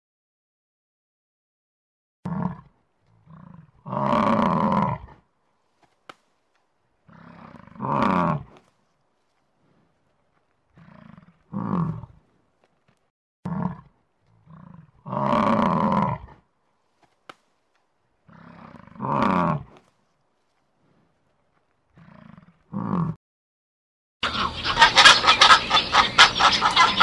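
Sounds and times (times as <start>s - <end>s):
buffalo grunts: 2.3s - 5.3s, 7.0s - 8.7s, 10.7s - 12.4s, 13.5s - 16.5s, 18.2s - 19.8s, 21.9s - 23.2s.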